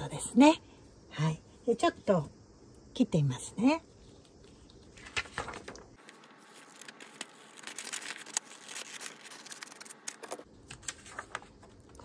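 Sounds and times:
paper rustling: 0:04.4 - 0:12.0
scissors snipping paper: 0:06.1 - 0:10.4.

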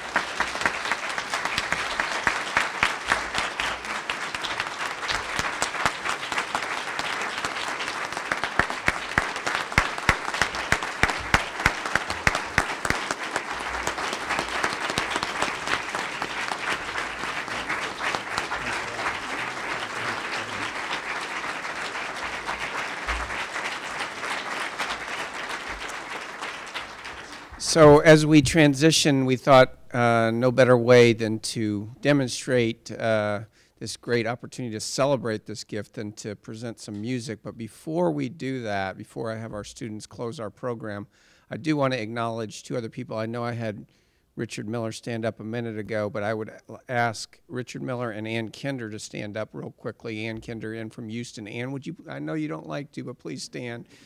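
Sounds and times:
audience applauding: 0:00.0 - 0:28.3.

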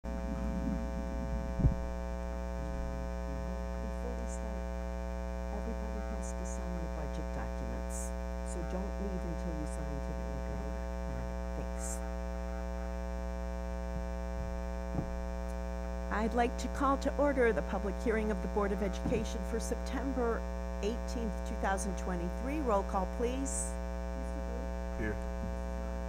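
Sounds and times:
electrical mains hum: 0:00.0 - 0:26.0
faint voices murmuring: 0:24.2 - 0:25.2.

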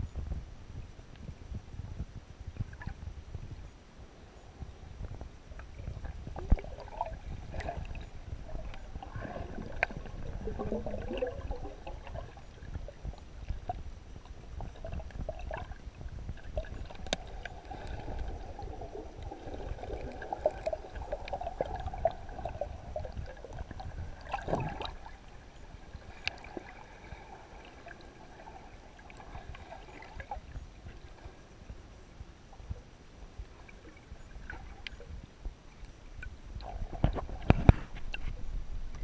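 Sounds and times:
underwater clicks and crackles: 0:00.0 - 0:03.8, 0:04.4 - 0:39.0
muffled underwater water rush: 0:00.0 - 0:39.0
water swoosh: 0:05.8 - 0:30.5.

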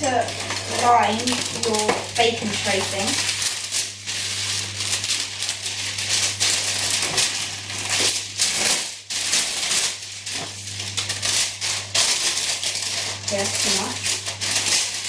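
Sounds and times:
baking paper crinkling: 0:00.0 - 0:15.0.

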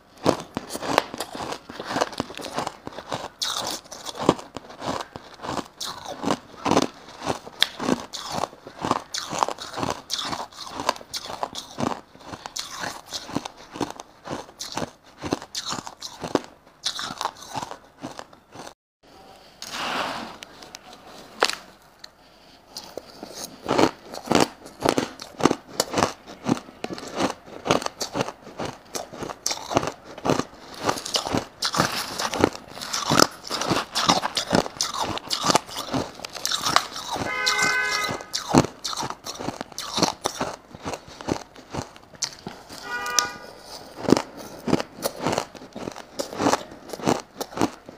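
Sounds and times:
ice crunching while chewed: 0:00.0 - 0:18.8, 0:20.5 - 0:47.9
short pitched tone: 0:37.3 - 0:38.3.

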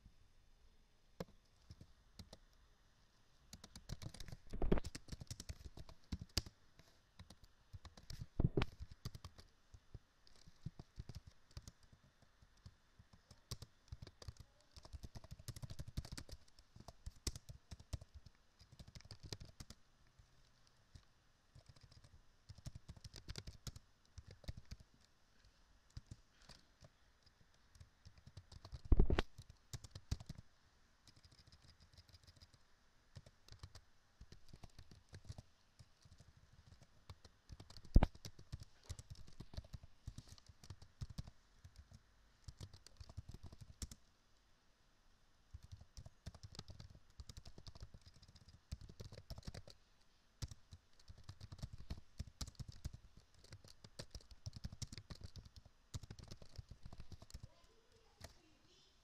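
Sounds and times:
computer keyboard typing: 0:03.5 - 0:06.5, 0:07.2 - 0:09.5, 0:10.3 - 0:11.9, 0:12.6 - 0:19.8, 0:21.6 - 0:24.9, 0:25.9 - 0:26.9, 0:27.7 - 0:30.4, 0:31.1 - 0:32.6, 0:33.2 - 0:44.0, 0:45.5 - 0:49.8, 0:50.4 - 0:57.5.

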